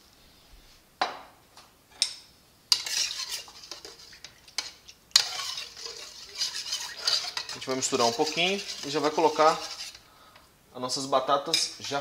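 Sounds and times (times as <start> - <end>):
utensil stirring in a saucepan: 2.7 - 10.2, 11.5 - 12.0.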